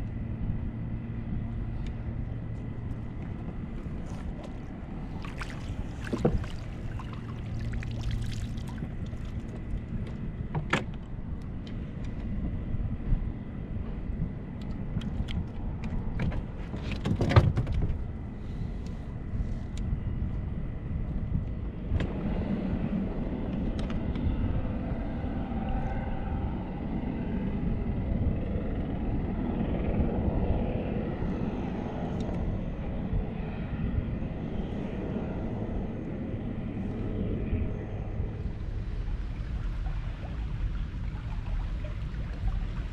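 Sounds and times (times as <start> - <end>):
low rumble with faint hum: 0.0 - 42.9
wind: 0.0 - 42.9
water lapping: 2.9 - 10.1, 38.4 - 42.9.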